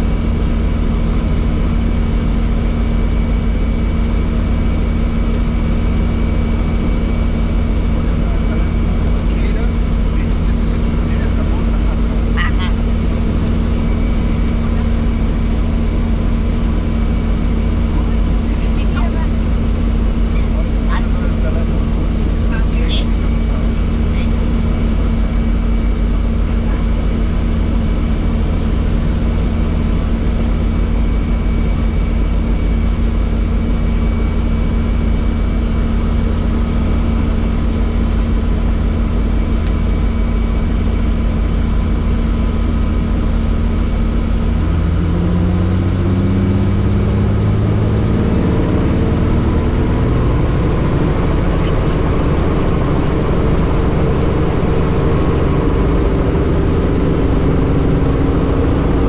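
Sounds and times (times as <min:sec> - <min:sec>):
helicopter engine and rotor: 0:00.0 - 0:59.0
rising tones: 0:44.8 - 0:59.0.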